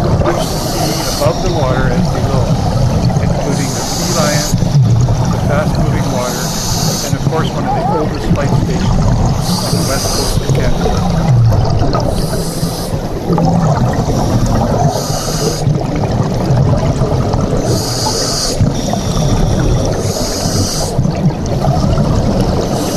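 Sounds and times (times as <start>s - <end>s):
underwater bubbling: 0.0s - 22.9s
regulator inhale hiss: 14.1s - 15.7s, 17.6s - 19.3s.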